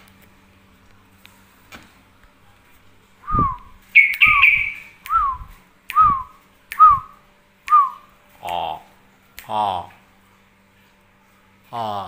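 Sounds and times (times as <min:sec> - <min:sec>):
whistled bird call: 0:03.3 - 0:06.2.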